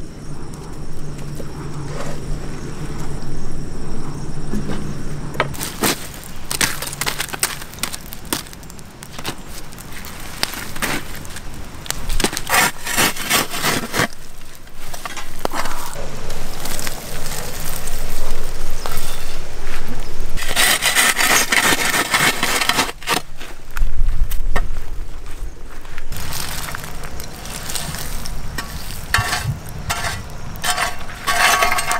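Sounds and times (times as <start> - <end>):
wood fire crackling: 0.0 - 31.9
embers raked with stick: 5.5 - 24.4, 26.1 - 31.9.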